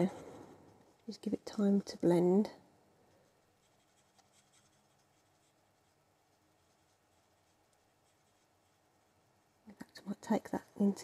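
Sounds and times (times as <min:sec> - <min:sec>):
marker nib scratching on cardstock: 0:03.5 - 0:10.9.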